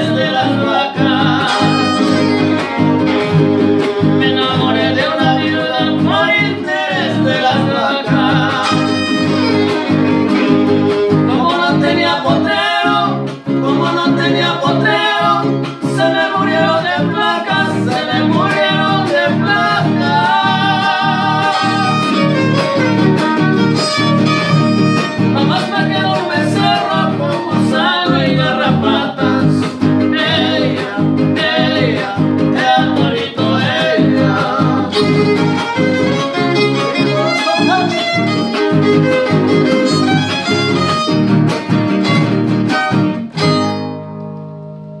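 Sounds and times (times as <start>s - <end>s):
strummed guitars: 0.0s - 45.0s
fiddle melody: 1.4s - 4.3s, 8.6s - 11.2s, 20.3s - 25.7s, 34.8s - 44.5s.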